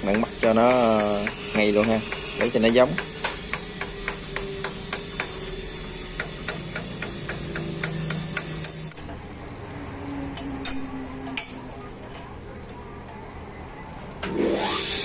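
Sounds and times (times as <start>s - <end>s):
rhythmic mechanical ticking: 0.0s - 9.3s
sharp metal clanks: 10.4s - 12.3s.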